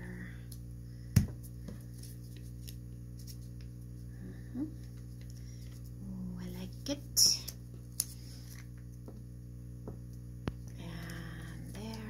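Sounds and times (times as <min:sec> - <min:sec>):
steady low hum: 0:00.0 - 0:12.0
paper handling noises: 0:01.8 - 0:03.8, 0:07.4 - 0:08.9.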